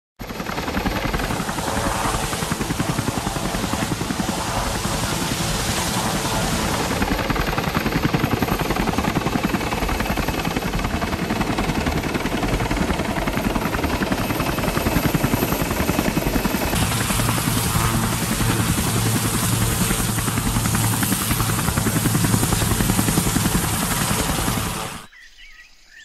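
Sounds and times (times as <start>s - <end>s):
helicopter blades chopping: 0.2s - 25.1s
low hum: 16.8s - 25.1s.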